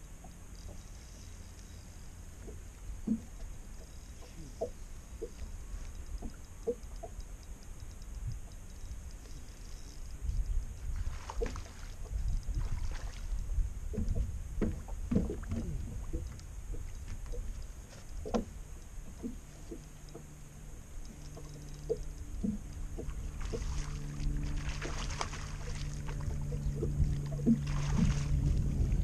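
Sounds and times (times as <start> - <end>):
steady low hum: 0.0 - 29.0
fish thrashing and splashing: 23.2 - 26.5.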